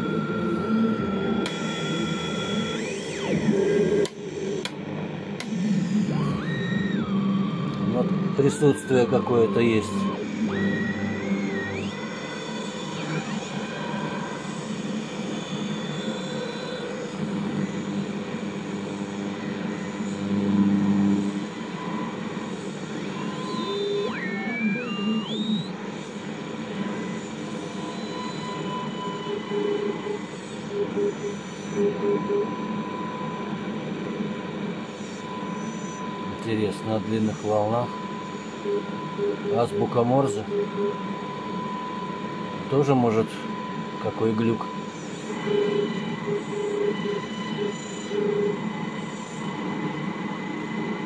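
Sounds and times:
radio hiss and crackle: 1.4s - 32.0s, 32.6s - 51.0s
faint steady whistles: 6.4s - 20.2s, 20.8s - 51.0s
faint thin radio tones: 7.8s - 14.4s, 35.0s - 48.5s
heterodyne whistles gliding: 8.3s - 12.4s, 23.2s - 25.7s
morse code tone: 37.6s - 41.2s, 45.4s - 48.6s.

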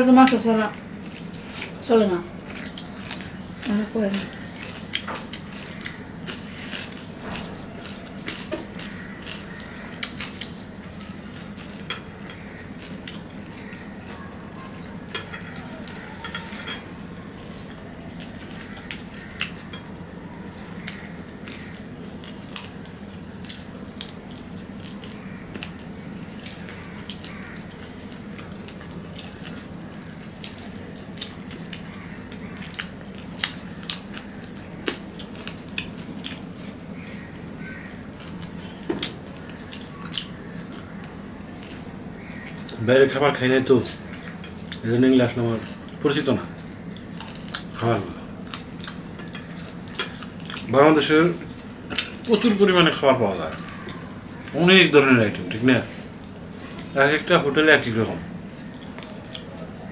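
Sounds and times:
fork clicking on plates: 14.8s - 16.9s.

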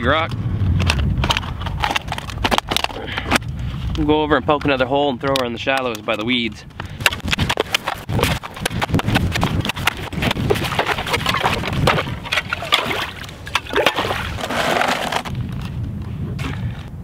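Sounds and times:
shovel chopping into ice: 7.0s - 15.3s
splashing in icy water: 9.4s - 15.2s.

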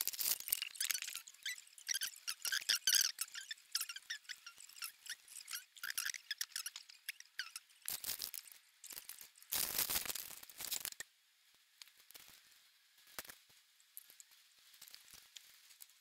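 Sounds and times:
plastic bag crinkling: 0.0s - 1.2s, 7.8s - 11.0s
plastic bricks rattling in bag: 0.0s - 1.3s, 7.9s - 11.0s
squeaky rubs: 0.0s - 9.0s.

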